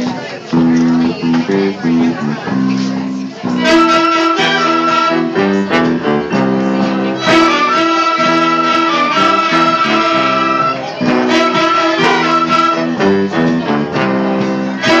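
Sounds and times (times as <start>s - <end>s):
orchestra of violins and flutes: 3.6s - 5.9s, 7.2s - 13.1s, 14.8s - 15.0s.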